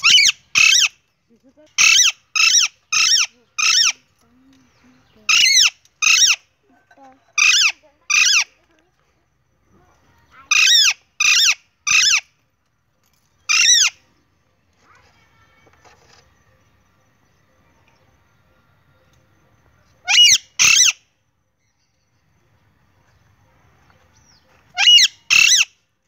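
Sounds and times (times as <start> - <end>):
parakeet piercing calls: 0.0 - 1.0, 1.8 - 4.0, 5.2 - 6.5, 7.4 - 8.5, 10.4 - 12.3, 13.5 - 14.0, 20.0 - 21.0, 24.7 - 25.8.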